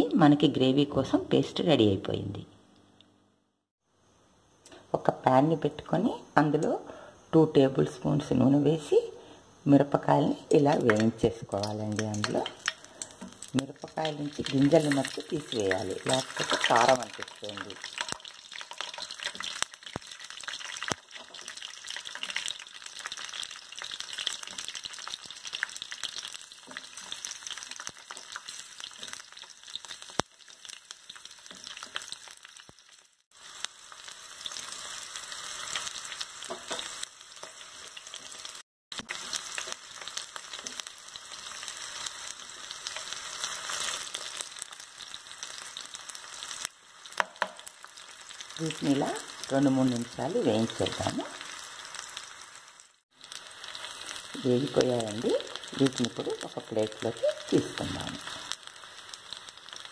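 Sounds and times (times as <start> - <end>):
chillies sizzling in hot oil: 3.8 - 59.9
sharp popping oil: 10.6 - 32.9, 46.6 - 47.7
stirring in a pan: 12.0 - 32.4.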